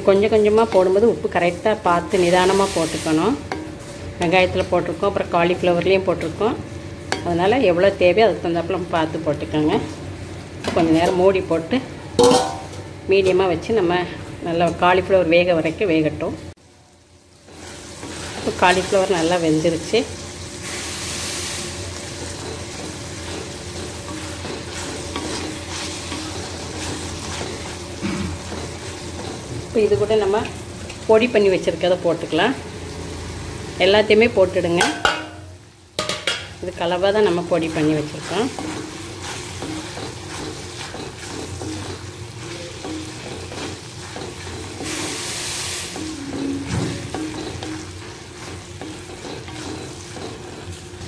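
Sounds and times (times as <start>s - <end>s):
food sizzling in a pan: 0.0s - 51.0s
wooden spatula scraping metal pan: 37.6s - 50.8s
wooden spatula scraping a pan: 47.4s - 50.8s.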